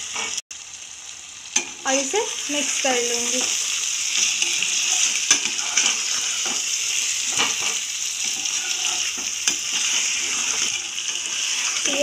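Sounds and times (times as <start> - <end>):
food sizzling in a pan: 0.0 - 12.0
spatula scraping a pan: 3.3 - 12.0.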